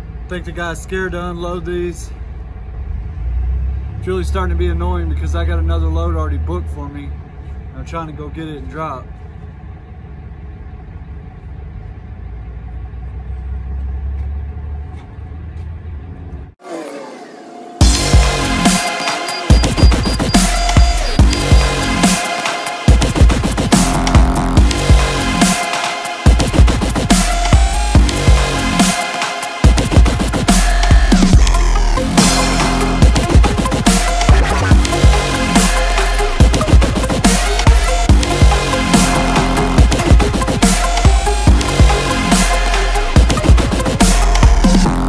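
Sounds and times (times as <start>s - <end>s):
vehicle engine rumbling: 0.0s - 29.0s, 29.6s - 45.0s
drum and bass music: 16.6s - 45.0s
synth sweep: 16.6s - 45.0s
deep kick drums: 19.5s - 21.9s, 22.9s - 25.4s, 29.7s - 35.4s, 36.4s - 42.1s.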